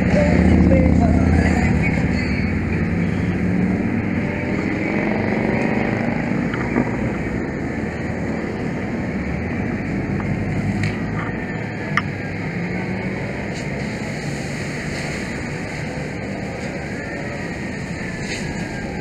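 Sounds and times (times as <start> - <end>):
fire engine engine droning: 0.0 - 19.0.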